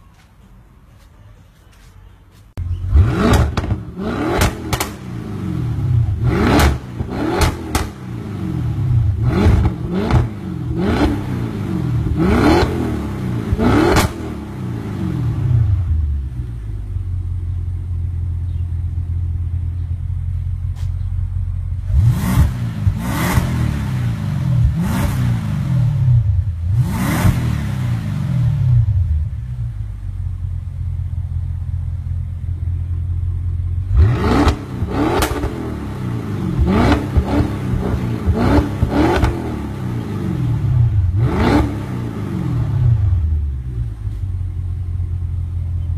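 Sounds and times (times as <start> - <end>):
car engine idling and revving: 2.5 - 45.9
exhaust cracks: 2.6 - 12.8.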